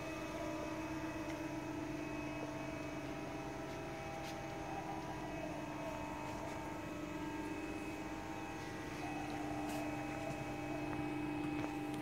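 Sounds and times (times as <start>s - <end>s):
hydraulic press hum: 0.0s - 12.0s.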